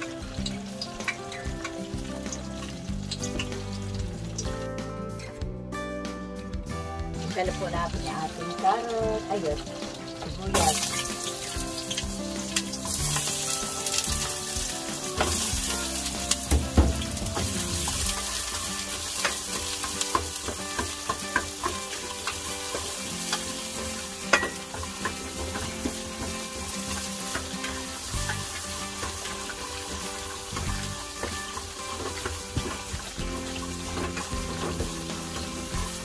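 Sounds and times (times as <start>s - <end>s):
vegetables sizzling in hot oil: 0.0s - 4.7s, 6.6s - 36.0s
utensil clicking against pan: 0.2s - 4.5s, 15.0s - 36.0s.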